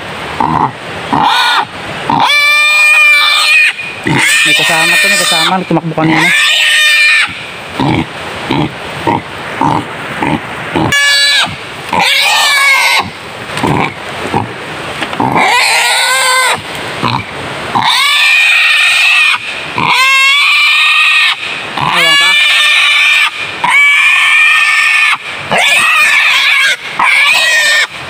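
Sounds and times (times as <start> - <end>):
wild boar squealing: 0.4 - 14.5, 15.2 - 28.0
boar grunting: 7.2 - 18.2, 19.3 - 23.8.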